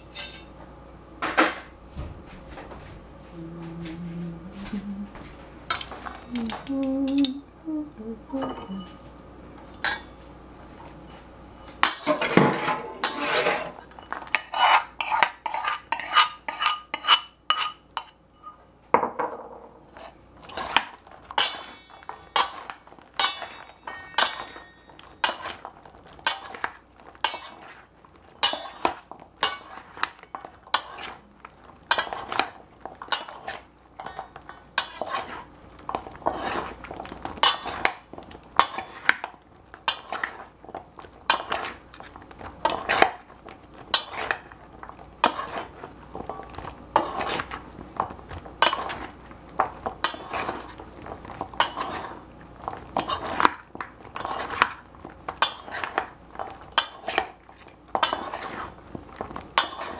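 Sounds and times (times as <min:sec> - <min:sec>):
bowl ringing: 0:08.3 - 0:09.0, 0:21.4 - 0:25.2
metal spoon scraping metal bowl: 0:11.6 - 0:18.6, 0:19.9 - 0:26.6.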